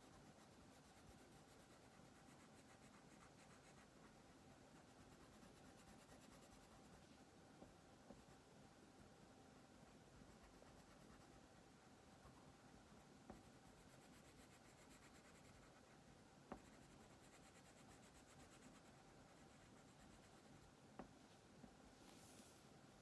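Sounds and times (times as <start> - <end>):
crayon scribbling on paper: 0.0 - 7.0, 9.9 - 11.4, 13.2 - 20.7.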